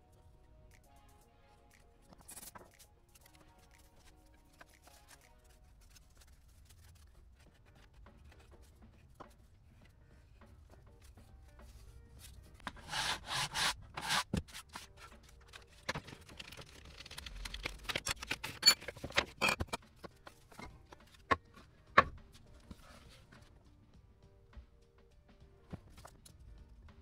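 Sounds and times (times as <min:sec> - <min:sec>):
rubbing on wood: 0:12.7 - 0:14.3.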